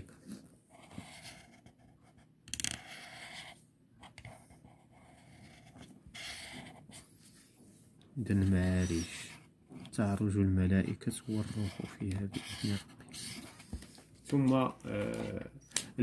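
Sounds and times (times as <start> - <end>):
felt tip scratching on paper: 0.7 - 2.2, 2.8 - 7.6, 8.3 - 9.9, 10.8 - 14.0.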